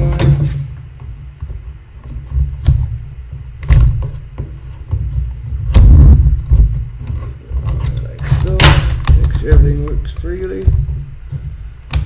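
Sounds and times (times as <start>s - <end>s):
plastic parts knocking and clicking: 1.0s - 12.0s
low thumps on workbench: 8.2s - 12.0s.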